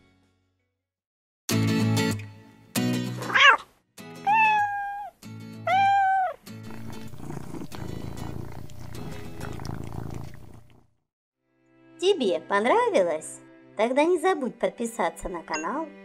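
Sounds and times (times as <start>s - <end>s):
cartoon cat cry: 3.2s - 6.4s
cartoon cat meows: 3.2s - 6.4s
light music: 4.0s - 9.8s, 11.5s - 16.0s
cat purring: 6.0s - 10.9s.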